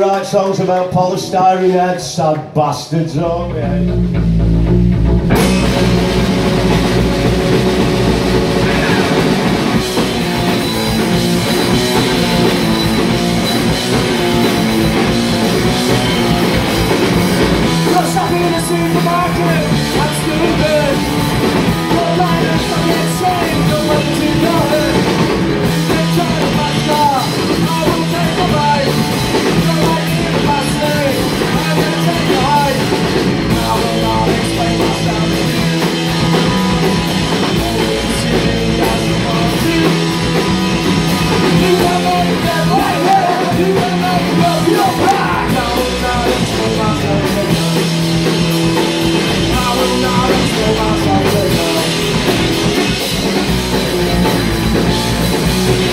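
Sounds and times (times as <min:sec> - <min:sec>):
live rock band playing: 0:03.3 - 0:55.9
person singing: 0:05.6 - 0:10.3, 0:17.8 - 0:21.1, 0:21.8 - 0:36.0, 0:37.3 - 0:40.4, 0:41.1 - 0:48.1, 0:49.3 - 0:52.8.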